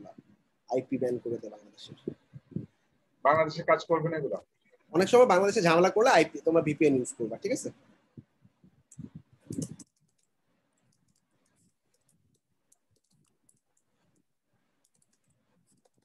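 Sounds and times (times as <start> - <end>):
computer keyboard typing: 8.9 - 16.0.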